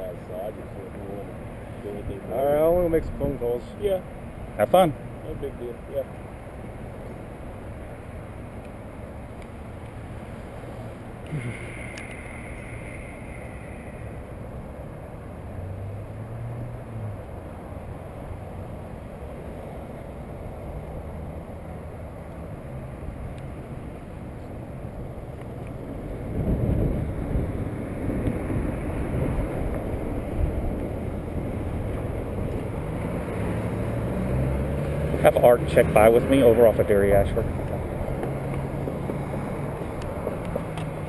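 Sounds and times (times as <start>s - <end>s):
cars driving past slowly: 0.0s - 41.0s
wind on microphone: 25.9s - 32.9s.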